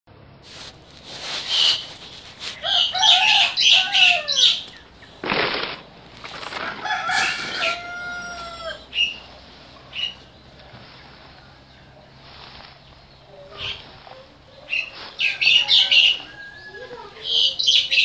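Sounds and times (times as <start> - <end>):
roosters crowing: 0.6 - 12.7, 13.5 - 18.0
burst of noise: 5.2 - 7.6.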